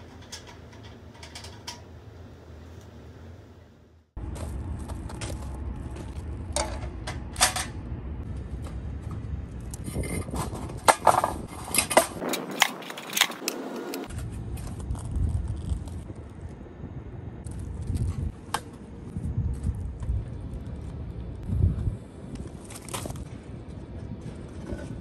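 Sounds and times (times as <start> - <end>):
steady low rumble: 2.0 - 25.0
footsteps crunching on gravel: 4.2 - 6.2.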